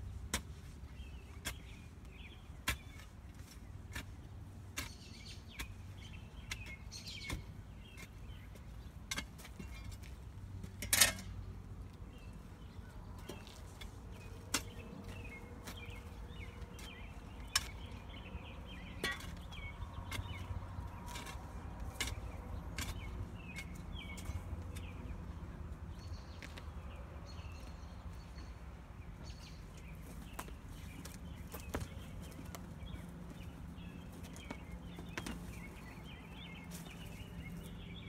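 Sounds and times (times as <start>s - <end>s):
hand tools knocking in soil: 0.2s - 25.5s.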